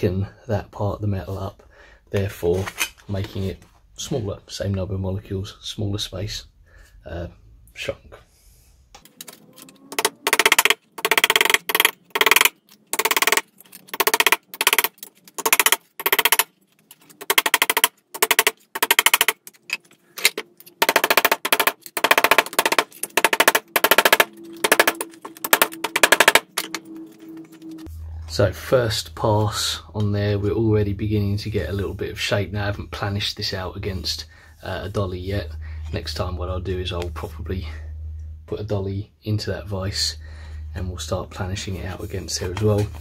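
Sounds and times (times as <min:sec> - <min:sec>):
hammer striking sheet metal: 0:20.9 - 0:26.8.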